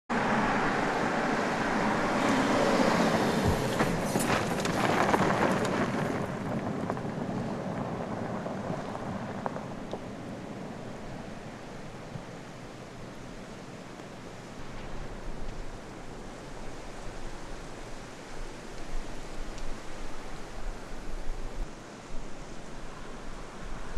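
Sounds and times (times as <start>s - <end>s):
tyres crunching on gravel: 3.4s - 10.8s.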